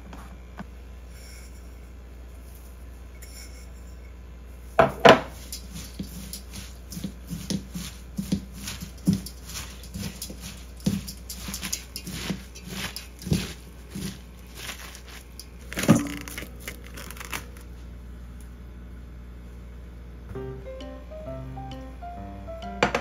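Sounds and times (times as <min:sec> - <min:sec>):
colander knocks: 0:04.8 - 0:14.2, 0:15.7 - 0:16.5, 0:22.8 - 0:23.0
cabbage crunching and rustling: 0:05.3 - 0:17.8.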